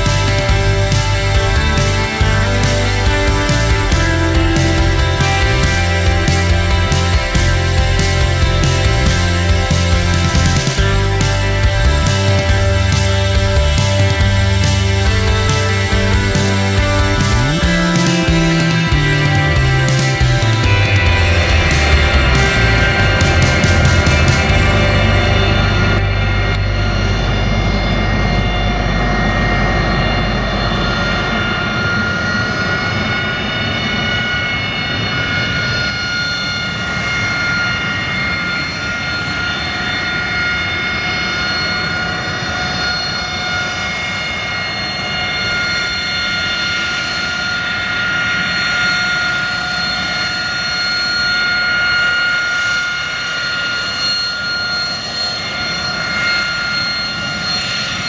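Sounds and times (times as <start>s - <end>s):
low engine rumble: 0.0s - 32.5s
jet engine whine: 0.0s - 58.0s.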